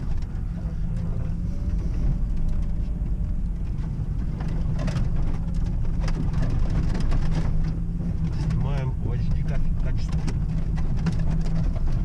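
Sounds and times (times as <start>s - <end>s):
engine and tyres droning: 0.0s - 12.0s.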